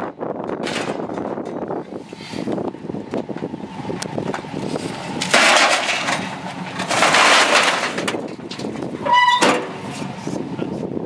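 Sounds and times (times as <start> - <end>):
metal tank scraping on truck bed: 4.6 - 10.2
tailgate squeal and bang: 9.0 - 9.8.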